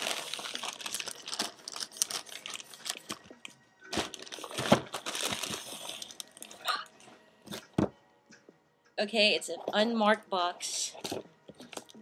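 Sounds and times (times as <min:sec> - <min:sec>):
packaging crinkling and rustling: 0:00.0 - 0:06.6.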